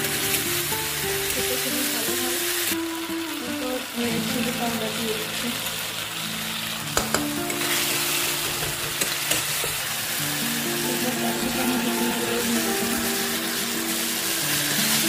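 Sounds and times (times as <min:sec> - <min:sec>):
background music with held notes: 0:00.0 - 0:15.0
spices sizzling in hot oil: 0:00.0 - 0:15.0
metal spatula clicking on pan: 0:07.0 - 0:07.3.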